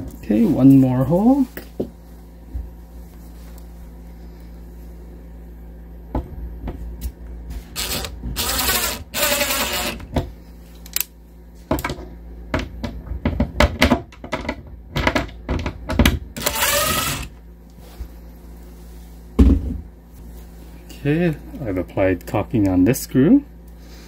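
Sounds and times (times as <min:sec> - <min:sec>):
power drill running: 0:07.8 - 0:10.1, 0:16.4 - 0:17.4.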